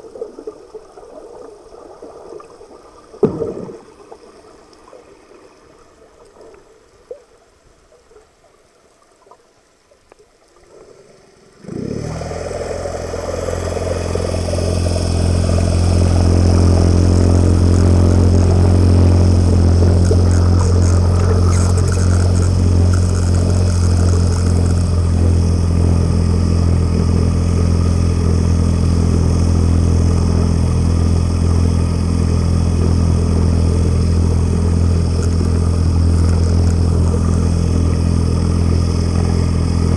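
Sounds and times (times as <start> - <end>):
underwater boat engine hum: 0.0 - 39.9
propeller wash churning: 11.4 - 39.9.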